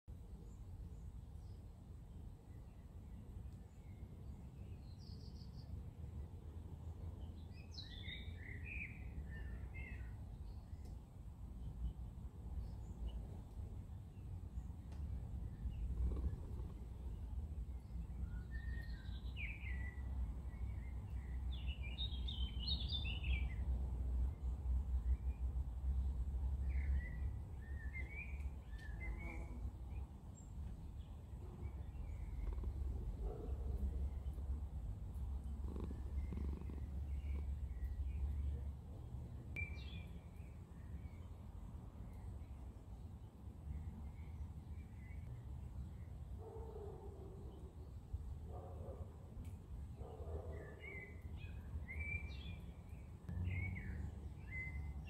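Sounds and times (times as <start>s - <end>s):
small songbird chirping: 0.1s - 48.5s, 49.4s - 55.0s
cat purring: 15.5s - 17.3s, 31.3s - 37.7s
steady low rumble: 30.6s - 39.6s.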